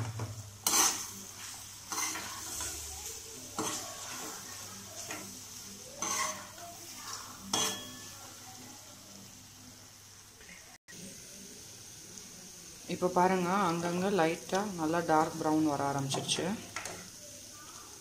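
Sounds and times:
food sizzling in oil: 0.0s - 18.0s
metal spoon scraping pan: 0.6s - 5.4s, 6.0s - 8.2s.

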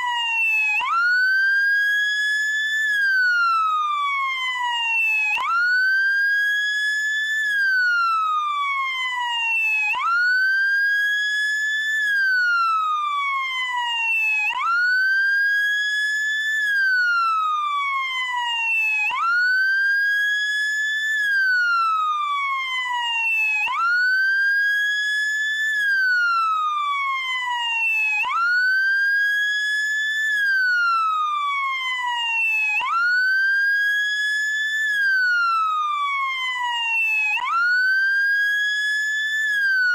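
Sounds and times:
ambulance wail siren: 0.0s - 39.9s.

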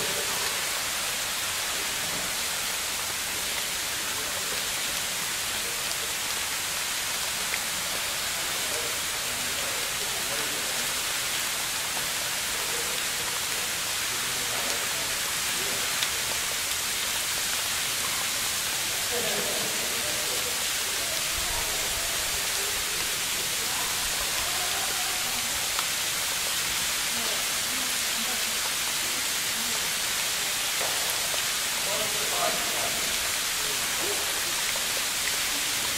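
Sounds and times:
faint distant voices: 17.8s - 35.9s.

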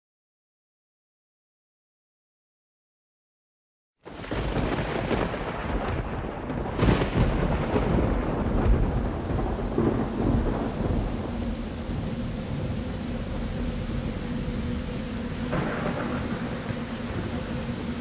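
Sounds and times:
rolling thunder: 4.1s - 18.0s
steady rain hiss: 4.1s - 18.0s.

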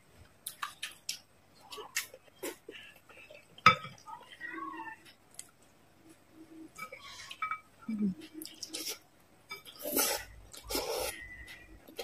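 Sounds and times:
wet chewing and mouth noises: 0.3s - 4.1s, 8.2s - 12.0s.

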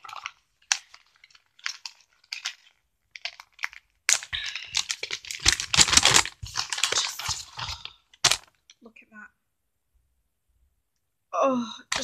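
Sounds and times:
wrapping paper crinkling: 0.0s - 8.8s.

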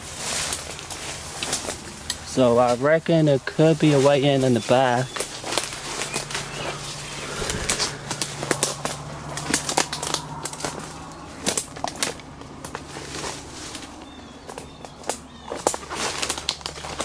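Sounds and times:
footsteps crunching dry leaves: 0.0s - 8.0s, 9.8s - 17.0s
branches rustling: 0.0s - 17.0s
twigs snapping: 9.4s - 17.0s.

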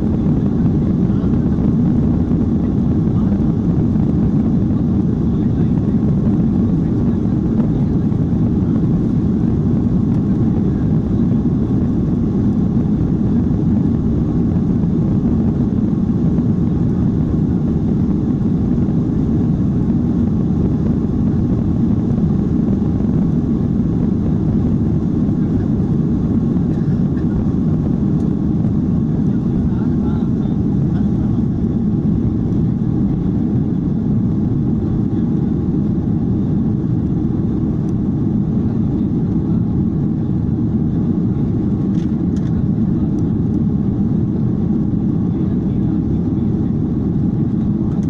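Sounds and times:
jet engines at takeoff power: 0.0s - 48.0s.

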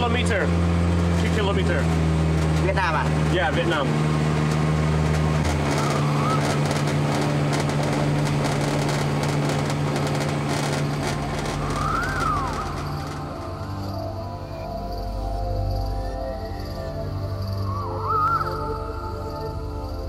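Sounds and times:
boat engine droning: 0.0s - 20.0s
faint whistling glides: 5.5s - 20.0s.

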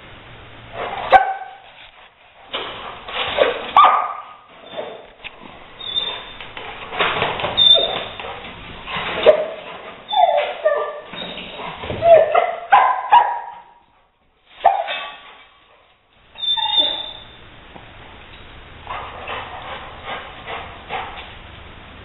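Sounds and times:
dog barking and whining: 0.8s - 1.7s, 3.4s - 5.1s, 5.8s - 6.4s, 7.5s - 13.8s, 14.6s - 15.5s, 16.3s - 17.4s, 18.8s - 21.2s.

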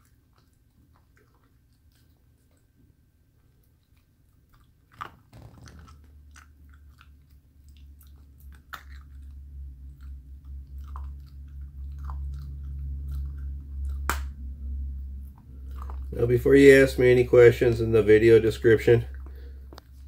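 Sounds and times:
puppy crunching bones: 0.0s - 20.0s
steady low hum: 0.0s - 20.0s.

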